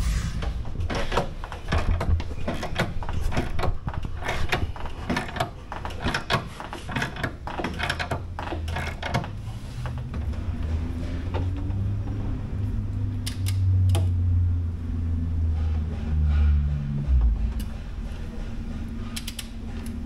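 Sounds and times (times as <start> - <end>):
steady low hum: 0.0 - 5.0, 9.2 - 20.0
hand tools clicking and clanking: 0.8 - 10.3, 17.2 - 20.0.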